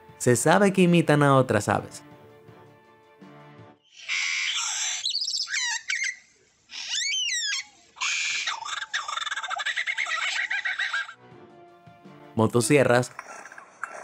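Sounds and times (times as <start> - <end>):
lyrebird harsh calls and whistles: 3.8 - 9.2
lyrebird rapid chattering: 3.9 - 11.0.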